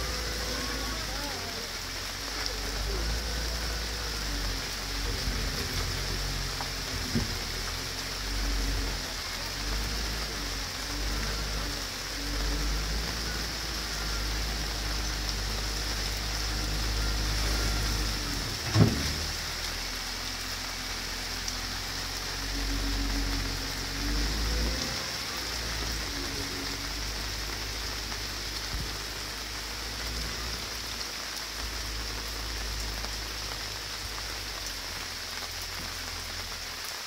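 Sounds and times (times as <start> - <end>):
diesel engine running: 0.0 - 37.0
heavy rain on pavement: 0.0 - 37.0.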